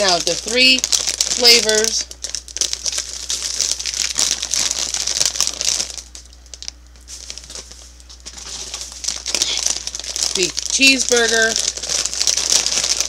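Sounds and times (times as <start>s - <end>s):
foil snack bags crinkling: 0.0s - 13.0s.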